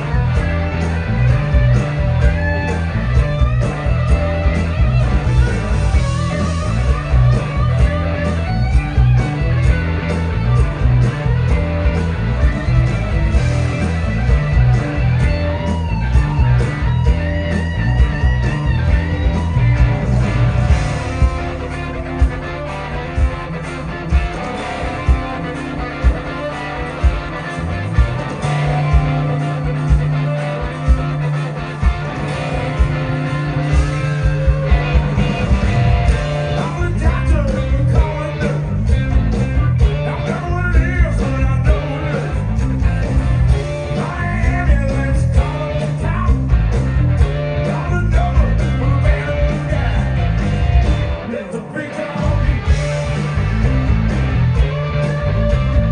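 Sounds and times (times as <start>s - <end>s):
drum beat: 0.0s - 51.0s
bass: 0.0s - 55.9s
electric guitar: 0.0s - 55.9s
man singing: 36.4s - 38.8s, 39.9s - 42.6s, 43.6s - 46.5s, 47.6s - 50.4s, 51.2s - 52.8s.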